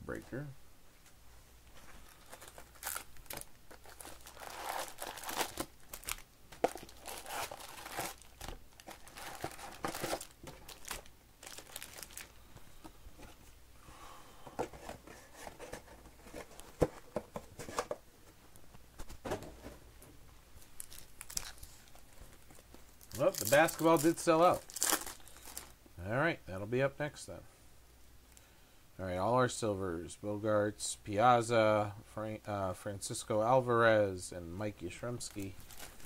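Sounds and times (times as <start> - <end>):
foil packs crinkling: 2.0 - 12.3, 20.8 - 25.8, 35.2 - 36.0.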